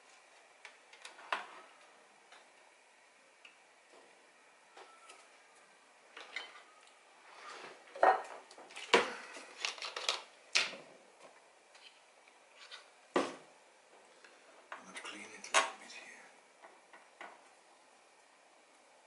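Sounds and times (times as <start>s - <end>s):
small items clicking on a workbench: 8.4s - 10.8s.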